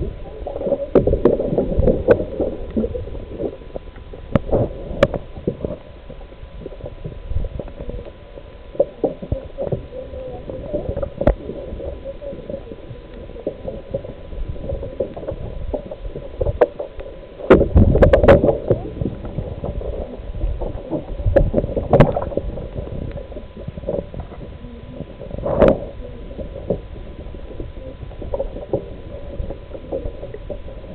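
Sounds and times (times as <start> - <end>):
muffled water sloshing: 0.0 - 30.9.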